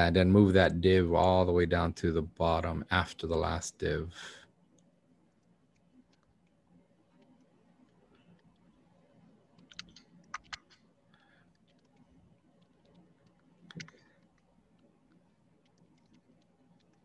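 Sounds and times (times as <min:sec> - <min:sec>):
computer keyboard keystrokes: 0:09.6 - 0:10.8, 0:12.8 - 0:14.4.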